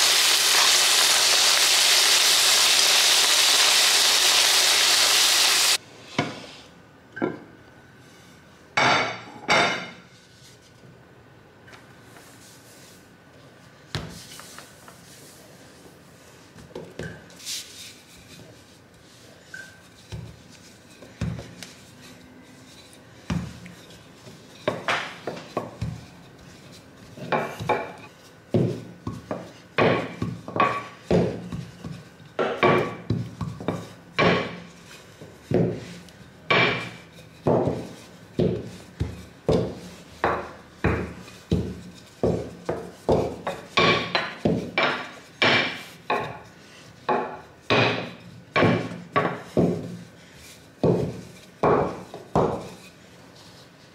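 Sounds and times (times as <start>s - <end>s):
rolling pin knocking on counter: 27.2s - 34.6s, 36.5s - 46.4s, 47.1s - 50.0s, 50.8s - 52.8s.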